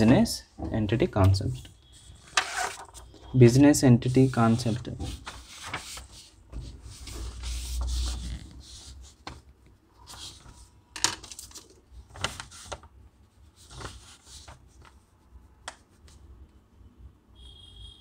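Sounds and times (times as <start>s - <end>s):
paper rustling on table: 1.6s - 3.4s, 4.2s - 9.4s, 10.0s - 12.9s, 13.6s - 15.0s.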